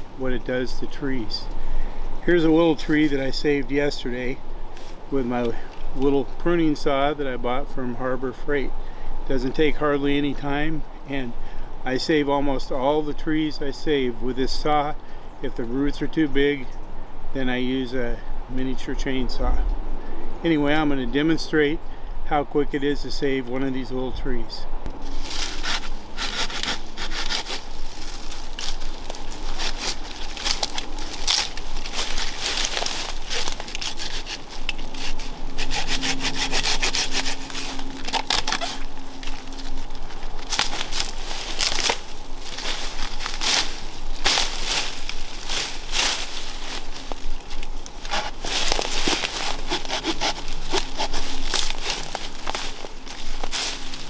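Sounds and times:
hand saw cutting stems: 25.1s - 39.7s, 40.4s - 54.0s.

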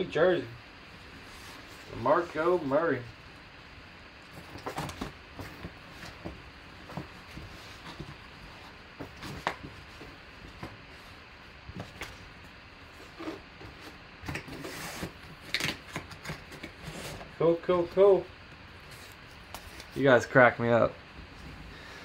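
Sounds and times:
paper and cardboard rustling: 4.3s - 12.2s, 12.9s - 17.9s, 18.8s - 20.2s.

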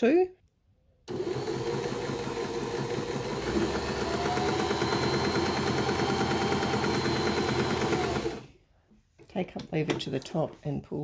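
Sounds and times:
sewing machine stitching: 1.1s - 8.5s.

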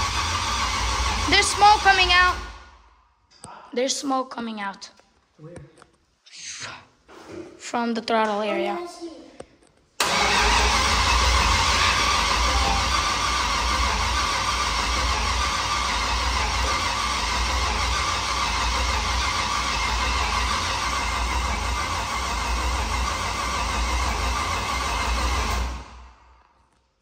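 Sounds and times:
car engine running: 0.0s - 3.0s, 10.0s - 26.2s.

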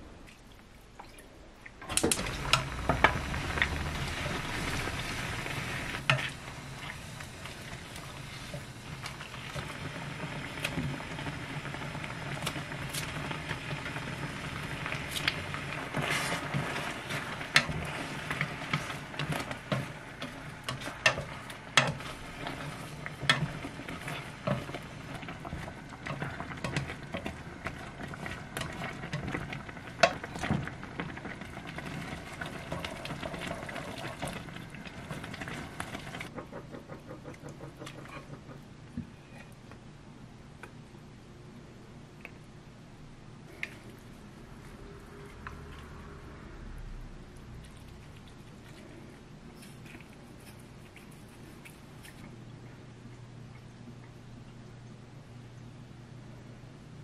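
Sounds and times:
food sizzling and bubbling in pan: 1.9s - 39.5s
chopsticks scraping a pan: 15.1s - 24.7s.

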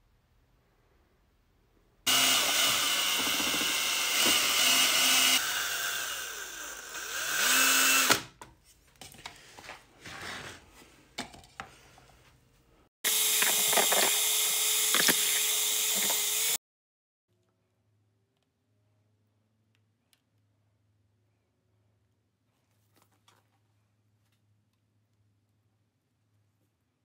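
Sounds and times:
power drill mixing resin: 2.1s - 8.4s, 13.0s - 16.6s.

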